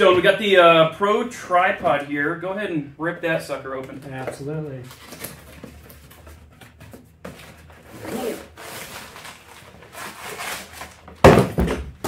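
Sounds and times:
cardboard tearing and rubbing: 7.8s - 11.4s.

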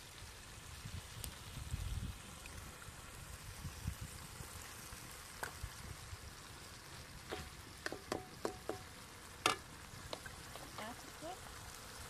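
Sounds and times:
omelette sizzling in a frying pan: 0.0s - 12.0s
metal ladle knocking on pan: 7.3s - 9.6s.

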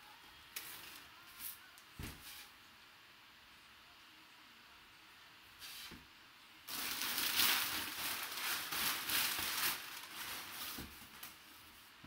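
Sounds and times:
packing paper rustling: 6.7s - 11.6s.

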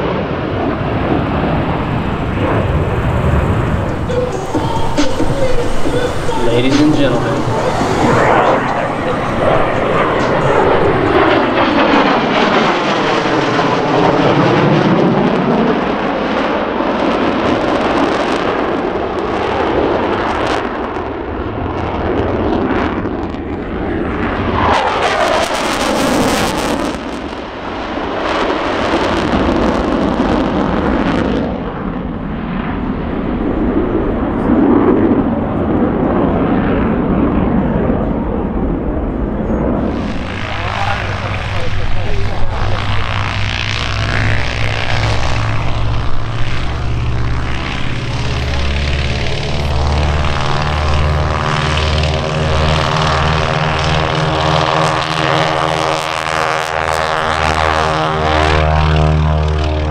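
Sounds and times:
fighter jet roaring past: 0.0s - 59.9s
harsh hissing jet surge: 1.8s - 11.5s, 39.8s - 51.1s.

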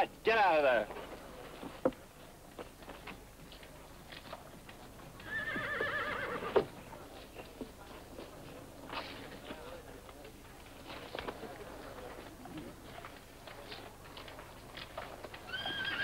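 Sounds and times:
horse whinnying: 5.2s - 6.6s, 15.5s - 16.0s.

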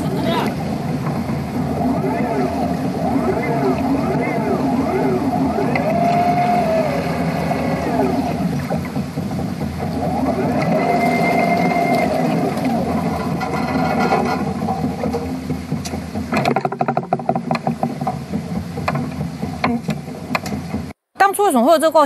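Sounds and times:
electric motor hum: 0.0s - 16.3s
motor whine: 0.0s - 16.3s
conveyor belt clattering: 0.0s - 20.9s
churning water: 0.0s - 22.0s.

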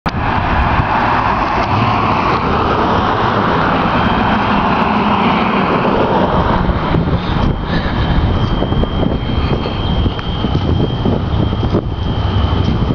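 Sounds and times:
car passing: 0.1s - 12.9s
high-pitched electronic alarm tone: 8.1s - 12.9s.

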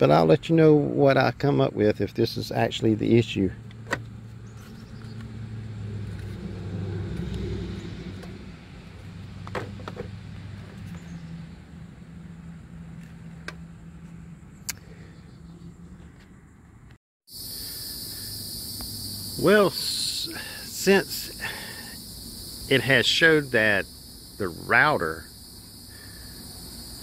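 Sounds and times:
car engine running: 3.3s - 14.6s.

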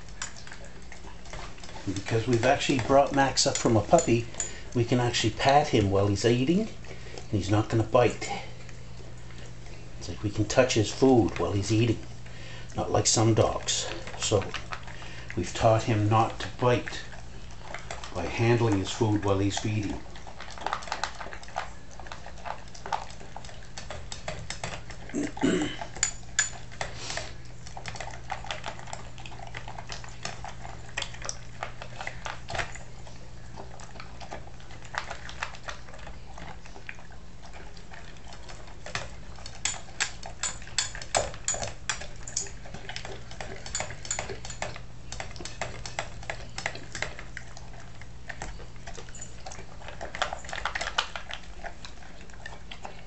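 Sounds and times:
dog chewing food: 0.0s - 53.0s
steady low hum: 0.0s - 53.0s
clinks against metal bowl: 26.0s - 26.6s.

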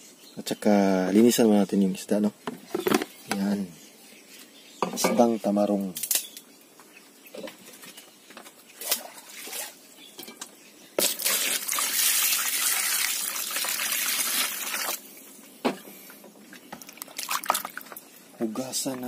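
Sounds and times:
water pouring into a basin: 11.0s - 15.0s, 16.9s - 18.0s.

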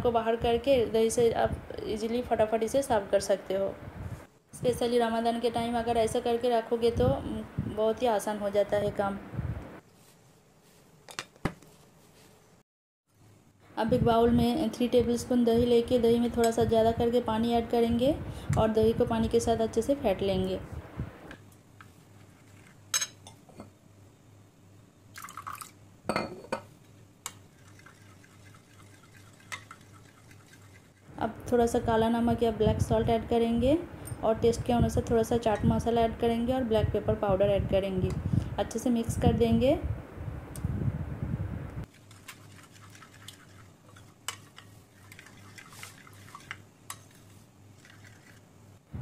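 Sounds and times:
metal spoon clinking ceramic bowl: 23.0s - 23.7s, 26.1s - 26.6s
water pouring into bowl: 25.1s - 25.8s, 27.5s - 31.0s.

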